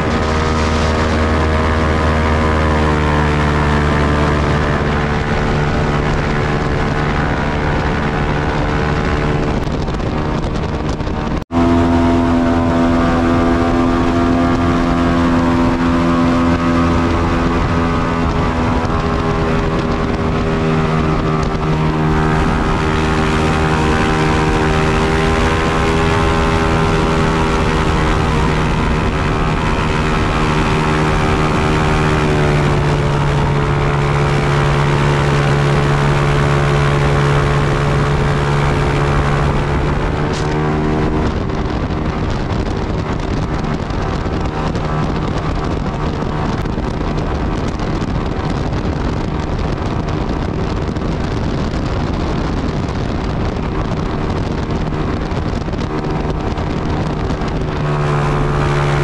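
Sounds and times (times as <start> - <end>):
airboat engine drone: 0.0 - 59.0
wind on microphone: 0.0 - 59.0.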